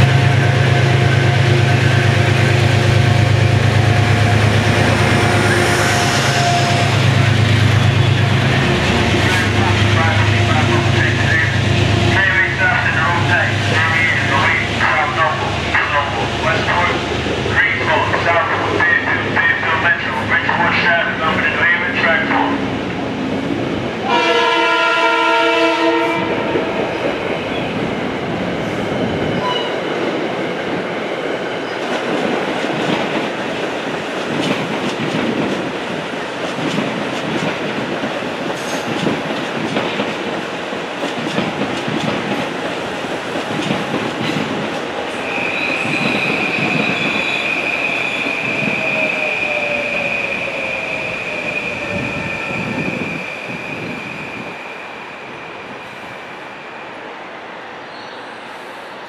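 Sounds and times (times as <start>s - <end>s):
train horn chord: 5.0s - 7.0s, 24.0s - 26.6s
train wheels clicking over rail joints: 31.8s - 35.8s, 36.4s - 44.9s.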